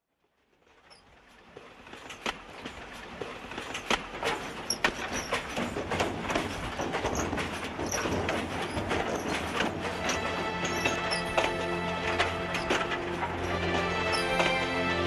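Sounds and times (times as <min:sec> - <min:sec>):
clanks and clicks of train: 0:00.3 - 0:15.0
train running: 0:00.5 - 0:15.0.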